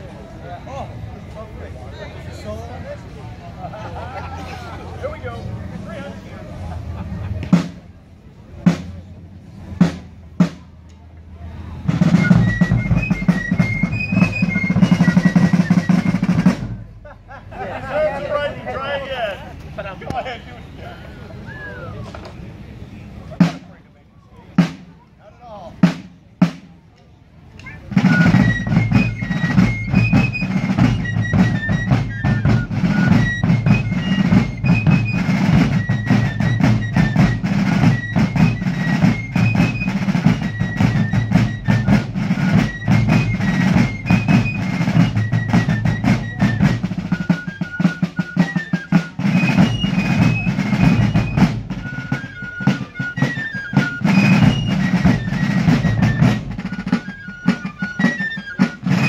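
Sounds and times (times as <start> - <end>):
snare drums rattling: 11.9 - 16.9, 27.8 - 59.0.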